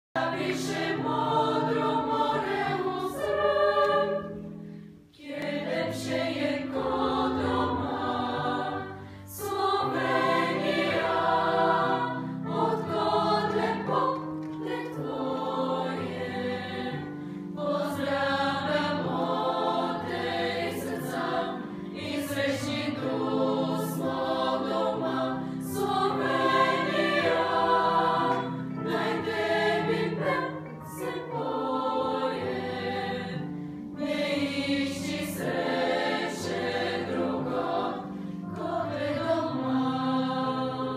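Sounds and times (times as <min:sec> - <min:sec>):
girls' choir singing: 0:00.2 - 0:04.6, 0:05.2 - 0:40.9
singers breathing: 0:04.5 - 0:05.2.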